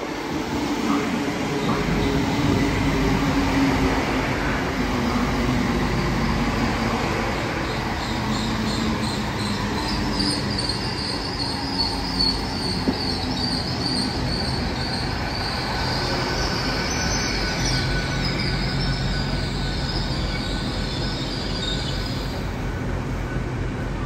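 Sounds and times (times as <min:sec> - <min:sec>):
low train rumble: 0:00.0 - 0:24.0
train wheels squealing: 0:03.7 - 0:22.6.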